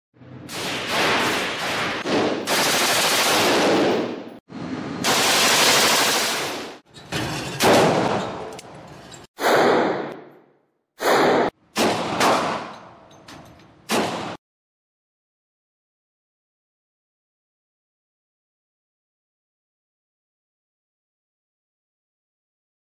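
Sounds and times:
rapid gunfire bursts: 0.5s - 4.2s, 5.0s - 6.8s.

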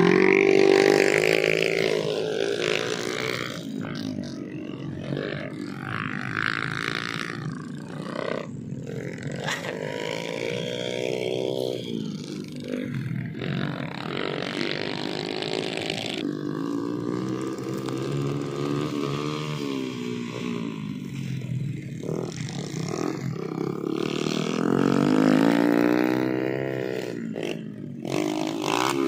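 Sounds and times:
small motorcycle engine revving: 0.0s - 29.0s.

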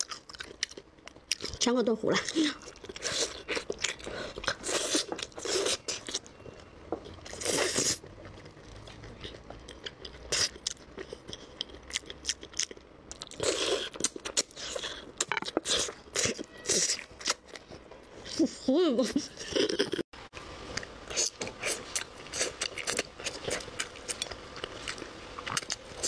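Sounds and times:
chewing and crunching pork: 0.0s - 18.5s, 20.8s - 26.0s.

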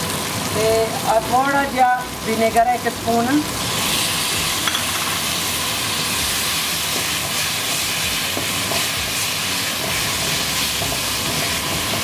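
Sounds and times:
vegetables sizzling in hot oil: 0.0s - 12.0s
spatula stirring in pan: 6.0s - 12.0s.

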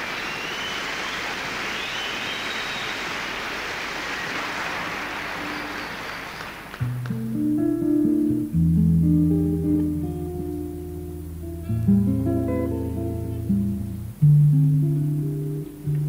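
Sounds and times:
whistles from audience: 0.0s - 6.8s
audience applauding: 0.0s - 7.2s
jazz guitar: 6.8s - 16.0s
double bass playing: 7.0s - 16.0s.

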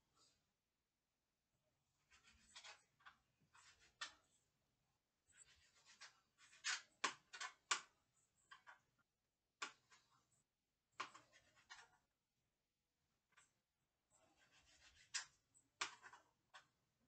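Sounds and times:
hands and utensils scraping: 2.0s - 4.3s, 5.3s - 8.8s, 11.0s - 12.1s, 14.1s - 16.7s.

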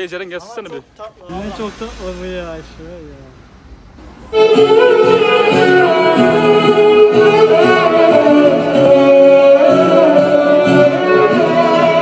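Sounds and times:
background music with singing: 4.3s - 12.0s.

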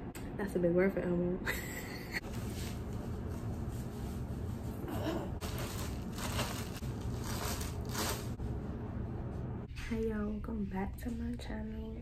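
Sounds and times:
steady low hum: 0.0s - 12.0s
plastic packet crinkling: 5.4s - 8.4s.

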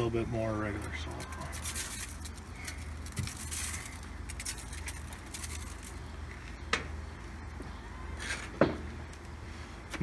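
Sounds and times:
steady low hum: 0.0s - 10.0s
salt shaker rattling: 0.8s - 6.0s.

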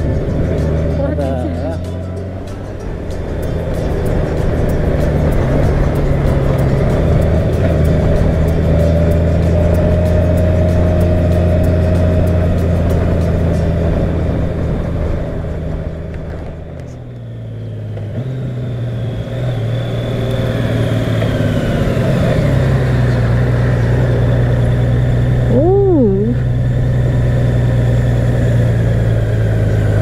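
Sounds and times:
motorcycle engine running: 0.0s - 30.0s
voice exclamation: 25.5s - 26.4s.

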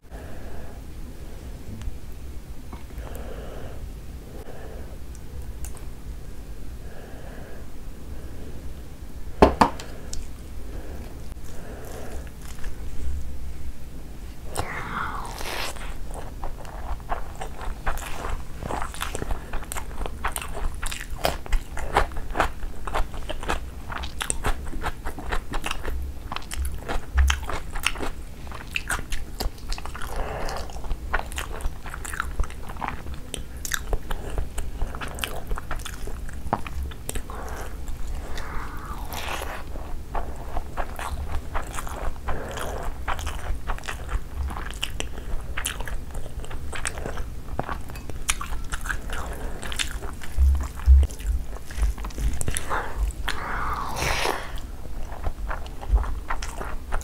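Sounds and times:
chewing and mouth smacking: 11.3s - 12.8s, 15.7s - 57.0s.

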